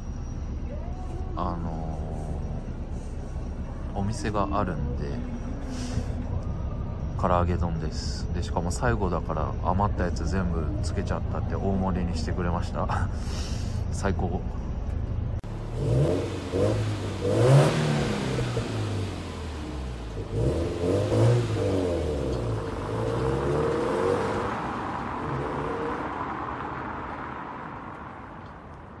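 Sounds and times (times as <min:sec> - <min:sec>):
car engine revving: 0:14.9 - 0:28.6.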